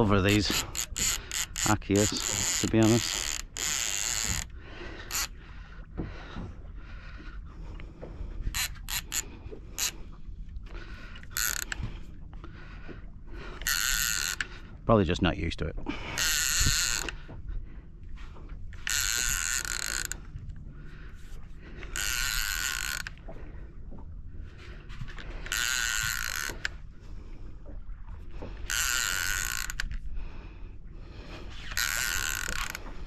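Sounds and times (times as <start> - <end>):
fishing reel ratcheting: 0.1 - 5.3, 8.4 - 10.0, 11.2 - 11.9, 13.5 - 14.7, 16.1 - 17.3, 18.7 - 20.3, 21.8 - 23.2, 25.2 - 26.8, 28.6 - 30.0, 31.5 - 32.9.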